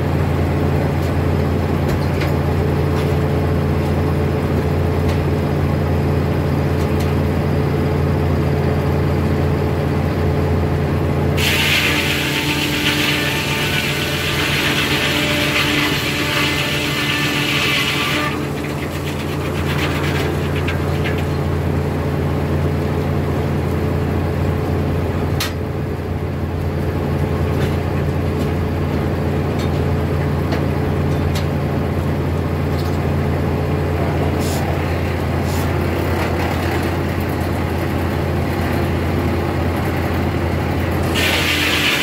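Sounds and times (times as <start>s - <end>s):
sawmill circular saw spinning: 11.4s - 22.1s, 40.8s - 42.0s.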